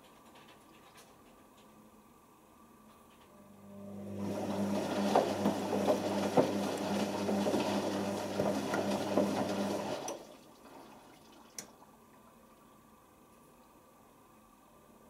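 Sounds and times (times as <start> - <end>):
washing machine drum turning: 4.1 - 10.4.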